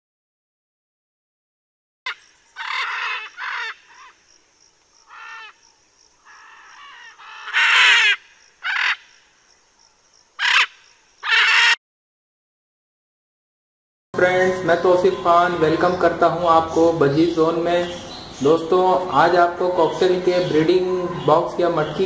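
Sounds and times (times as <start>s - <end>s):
parrot squawking: 2.6s - 4.1s, 6.3s - 9.0s, 10.4s - 11.8s.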